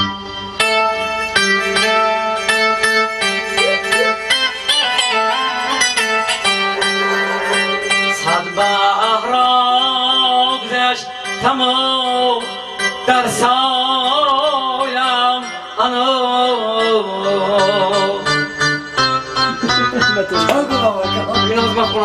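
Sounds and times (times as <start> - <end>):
electronic keyboard: 0.0 - 22.0
man singing: 3.6 - 18.5, 19.5 - 22.0.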